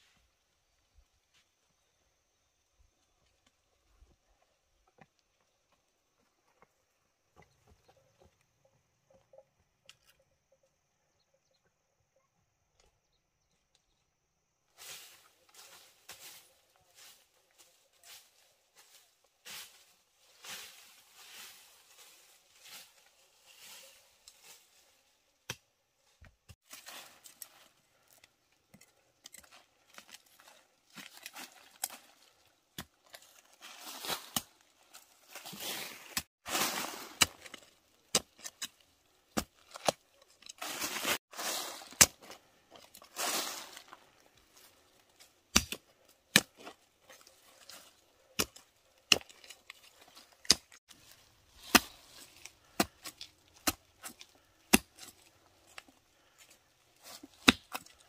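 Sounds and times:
rustling leaves: 14.7s - 25.3s, 26.6s - 58.0s
plant stems being cut: 45.5s - 58.0s.

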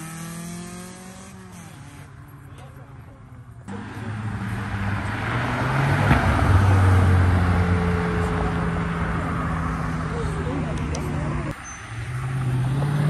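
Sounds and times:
car accelerating past: 3.7s - 13.0s.

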